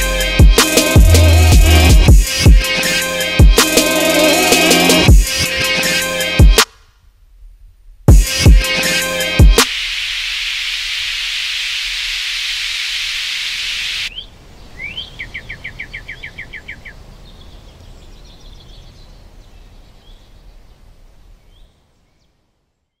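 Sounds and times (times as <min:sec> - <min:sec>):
steady hiss: 0:08.8 - 0:14.5
songbird chirping and trilling: 0:13.5 - 0:23.0.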